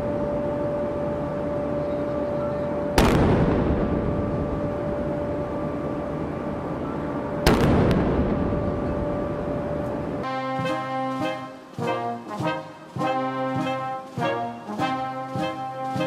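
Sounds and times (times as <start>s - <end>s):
cannon shots echoing: 3.0s - 4.6s, 7.5s - 8.8s.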